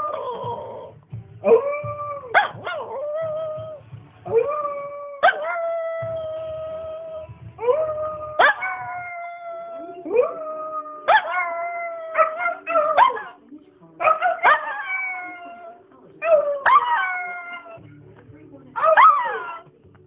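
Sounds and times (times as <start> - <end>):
dog howling: 0.0 - 13.4, 14.1 - 17.8, 18.8 - 19.6
dog yipping: 1.5 - 3.2, 4.6 - 5.6, 8.4 - 9.3, 11.1 - 13.4, 14.0 - 17.8, 18.8 - 19.6.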